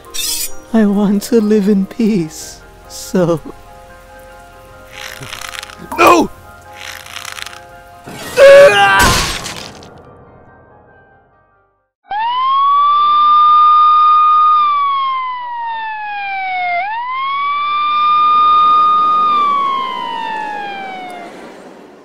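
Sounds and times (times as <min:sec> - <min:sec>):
police siren wailing: 0:12.1 - 0:21.6.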